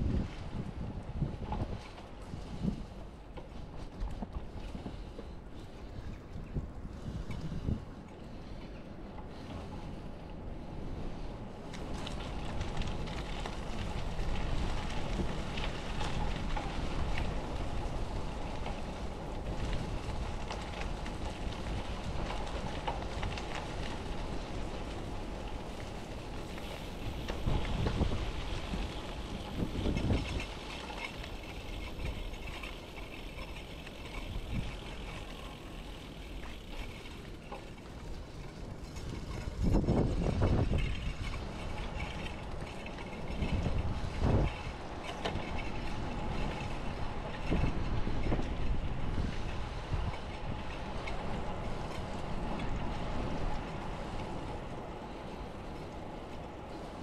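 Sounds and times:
wind on microphone: 0:00.0 - 0:03.0, 0:05.8 - 0:08.0, 0:25.7 - 0:35.3, 0:38.9 - 0:55.6
bicycle tyre rumble: 0:00.0 - 0:57.0
small rattles and clicks: 0:11.6 - 0:57.0.

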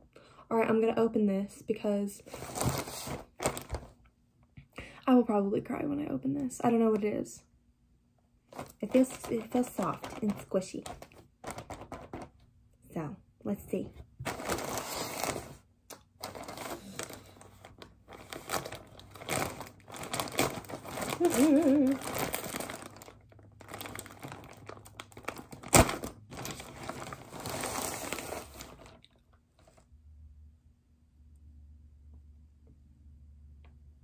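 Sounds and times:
packaging crinkling: 0:02.3 - 0:04.0, 0:08.5 - 0:12.4, 0:14.2 - 0:29.8.

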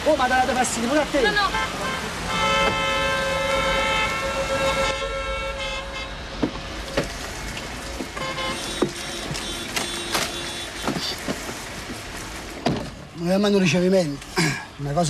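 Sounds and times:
car horn: 0:01.2 - 0:06.5, 0:08.1 - 0:11.2.

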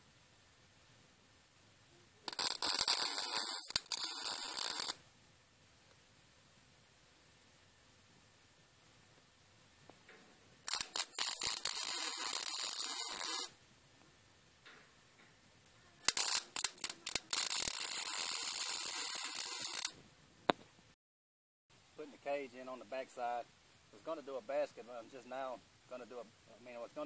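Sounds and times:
welder arc crackling: 0:02.3 - 0:05.0, 0:10.6 - 0:13.6, 0:16.0 - 0:20.0.

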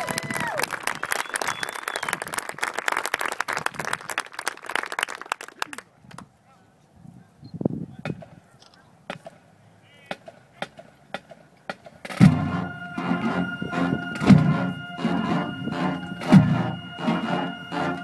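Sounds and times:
marching band playing: 0:12.1 - 0:18.0.

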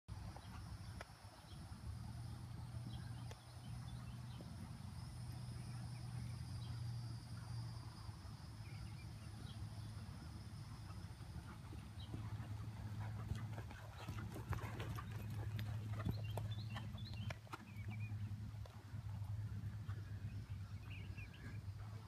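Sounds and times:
low steady hum: 0:00.1 - 0:22.0
horse hooves thudding on sand: 0:10.1 - 0:22.0.

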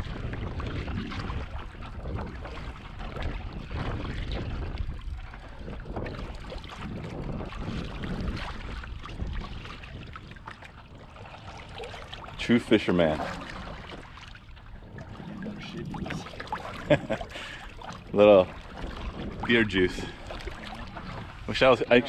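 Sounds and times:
water lapping against kayak hull: 0:00.0 - 0:22.0
wind rumbling on microphone: 0:00.0 - 0:22.0.

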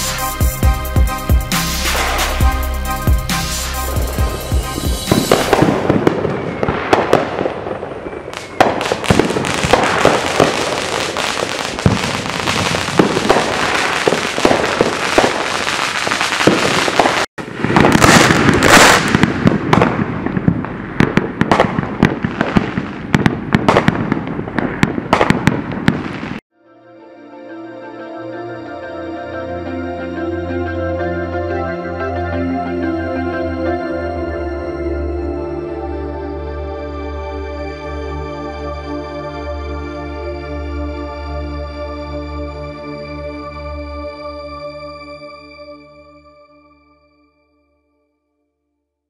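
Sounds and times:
fireworks popping and crackling: 0:04.0 - 0:26.4.

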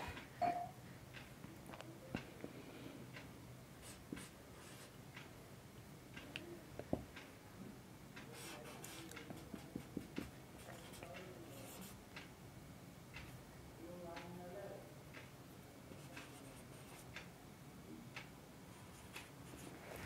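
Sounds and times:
marker scratching on whiteboard: 0:08.4 - 0:12.0, 0:16.0 - 0:17.1.

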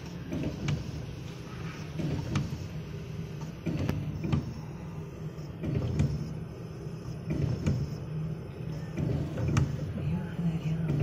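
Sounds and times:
steady low hum: 0:00.0 - 0:11.0
sharp mechanical clicks: 0:02.0 - 0:02.8, 0:03.4 - 0:04.6, 0:05.5 - 0:06.4, 0:07.2 - 0:08.1, 0:08.7 - 0:09.9.

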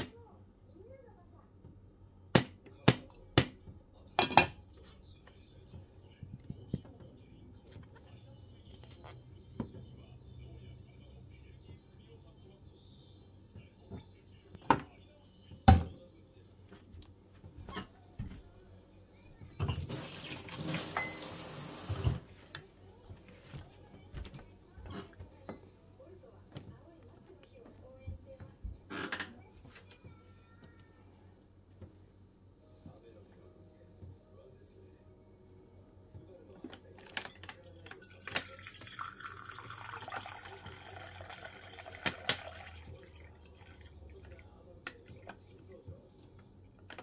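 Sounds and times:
liquid trickling into a metal cup: 0:37.9 - 0:44.5.

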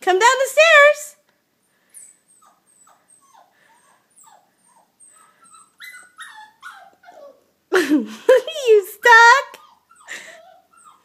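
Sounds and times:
small dog whining: 0:02.0 - 0:07.5, 0:09.5 - 0:11.0.

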